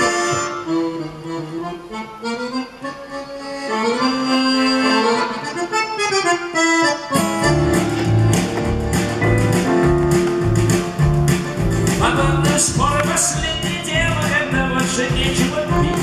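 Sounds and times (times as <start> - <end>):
accordion melody: 0.0 - 16.0
guitar: 0.0 - 16.0
double bass: 7.2 - 16.0
drums with steady beat: 7.4 - 16.0.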